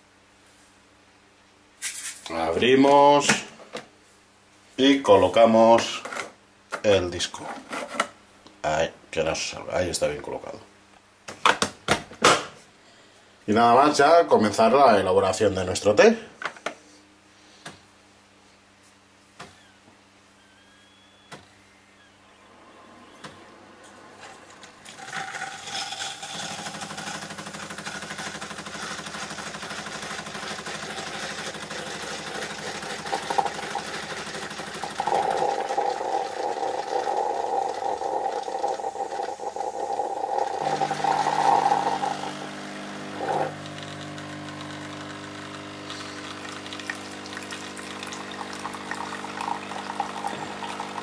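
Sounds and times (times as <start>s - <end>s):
coffee machine pump buzzing: 22.6s - 51.0s
tea running into glass: 24.4s - 51.0s.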